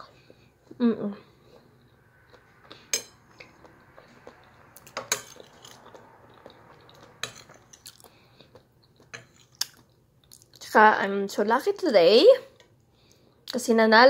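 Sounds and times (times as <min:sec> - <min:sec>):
metal spoon clinking on plate: 0:02.9 - 0:03.2, 0:04.9 - 0:05.9.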